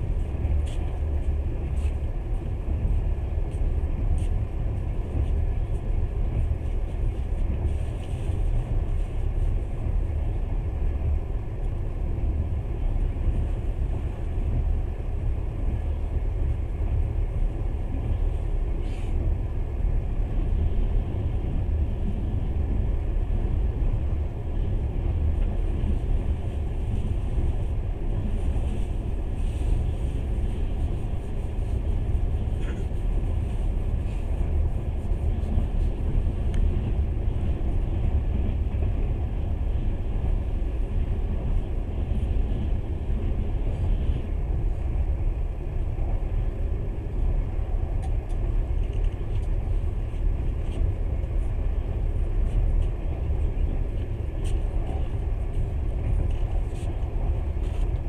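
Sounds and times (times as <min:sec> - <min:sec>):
train interior low rumble: 0:00.0 - 0:58.0.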